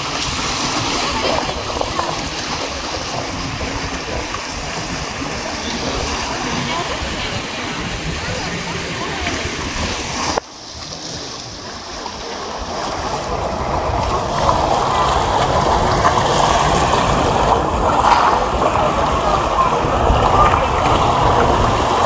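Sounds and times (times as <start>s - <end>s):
boat engines and water wash: 0.0s - 22.0s.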